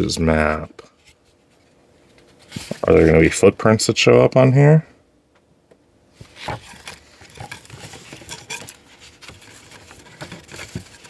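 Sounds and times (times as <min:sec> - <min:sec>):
paper and cardboard rustling: 0:00.3 - 0:03.2, 0:06.2 - 0:11.0.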